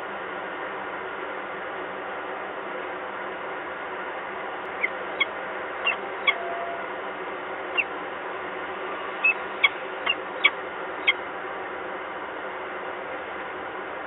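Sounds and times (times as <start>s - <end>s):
high bird chirps: 9.2s - 11.2s.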